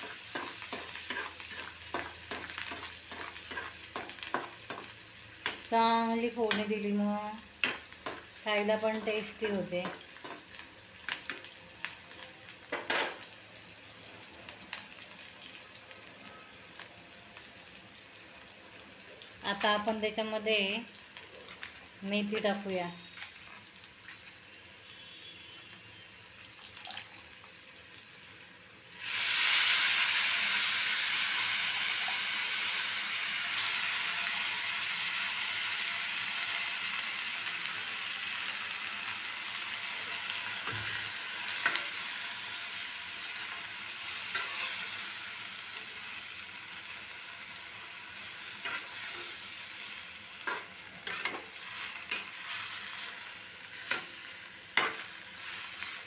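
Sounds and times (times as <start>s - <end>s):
leaves sizzling in hot oil: 0.0s - 56.0s
spatula scraping metal pan: 50.5s - 52.6s.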